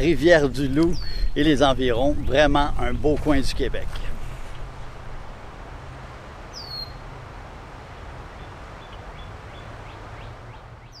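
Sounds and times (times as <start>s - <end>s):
steady hiss and low rumble: 0.0s - 11.0s
bird chirps: 6.5s - 7.2s, 8.3s - 11.0s.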